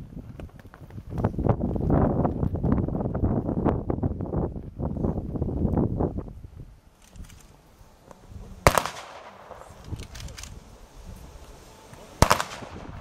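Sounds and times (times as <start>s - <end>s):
rifle gunshots with echo: 8.6s - 10.2s, 12.2s - 13.0s.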